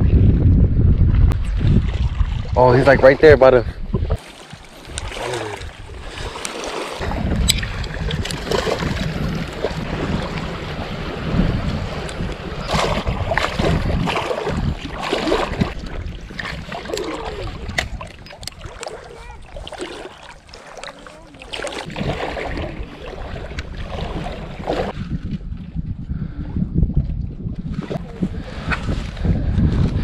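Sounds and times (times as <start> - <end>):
wind buffeting microphone: 0.0 - 6.4, 7.0 - 20.6, 21.2 - 30.0
water splashes: 1.4 - 25.0
water sloshing around wading legs: 4.2 - 25.0.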